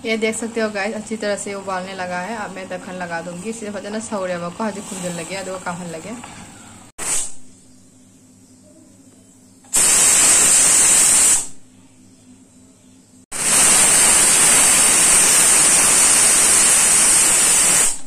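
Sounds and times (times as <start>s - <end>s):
pressure cooker whistling: 9.7s - 11.5s, 13.4s - 18.0s.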